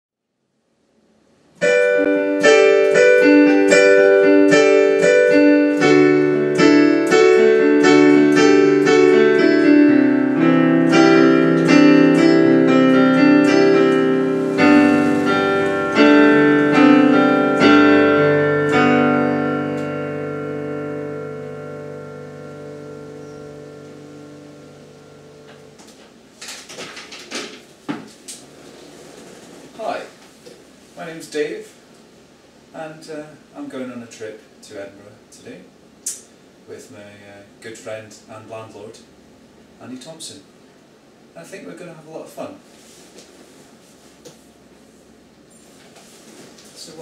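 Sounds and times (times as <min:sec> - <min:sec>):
digital piano chords: 0:01.6 - 0:26.3.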